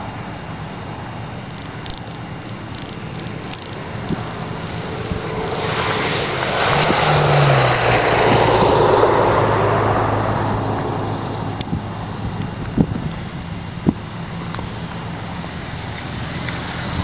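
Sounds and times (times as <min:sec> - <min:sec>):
vehicle passing by: 0:02.7 - 0:17.0.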